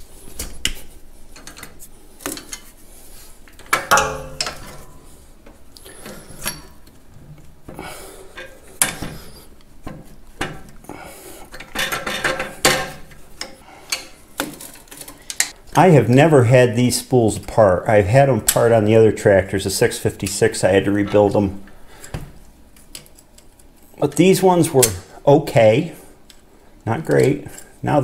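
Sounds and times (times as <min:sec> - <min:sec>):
tools clinking on metal: 0:03.6 - 0:05.0.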